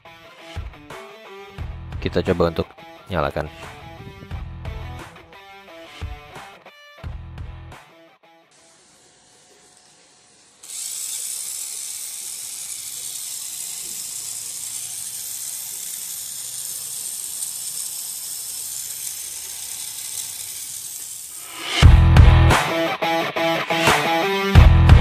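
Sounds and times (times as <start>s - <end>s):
toy car motor whirring: 8.5s - 21.8s.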